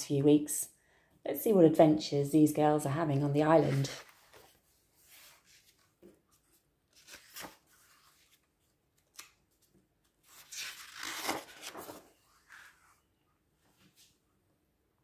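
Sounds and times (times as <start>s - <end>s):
paper rustling: 3.6s - 13.0s.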